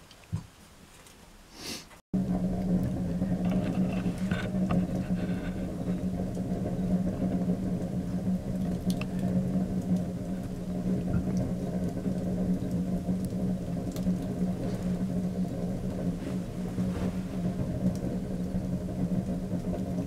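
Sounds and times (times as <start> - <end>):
fire crackling: 2.2 - 20.0
wood fire humming: 2.2 - 20.0.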